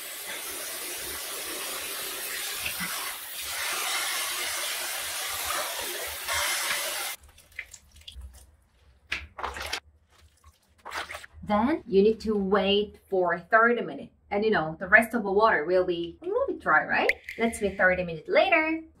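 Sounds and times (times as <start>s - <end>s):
tap water spraying into basin: 0.0s - 8.4s
wet squishes of cabbage: 7.1s - 11.4s.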